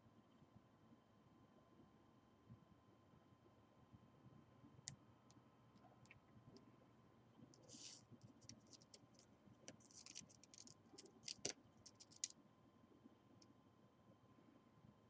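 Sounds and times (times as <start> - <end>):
light clicks and taps: 7.5 - 12.3
plastic bag crinkling: 8.4 - 12.3.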